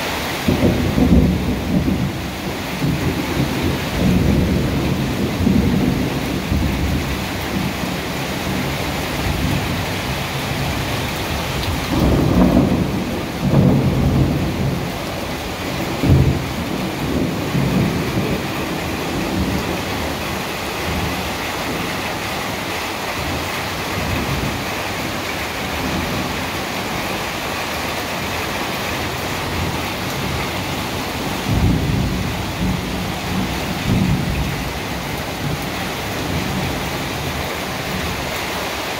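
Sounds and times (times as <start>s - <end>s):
thunder rumbling: 0.0s - 38.4s
heavy rain: 0.0s - 38.9s
thunder clap: 0.4s - 8.6s, 10.5s - 22.1s, 28.2s - 38.2s.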